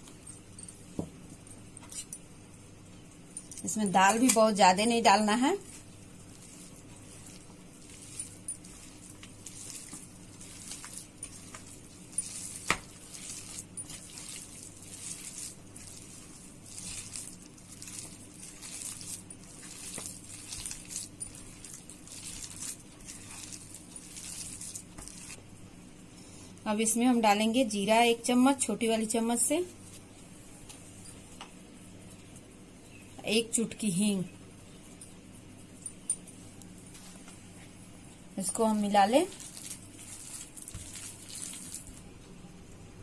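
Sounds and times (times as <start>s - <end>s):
faint low hum: 0.0s - 43.0s
hands squelching wet mash: 3.8s - 25.4s, 39.0s - 42.0s.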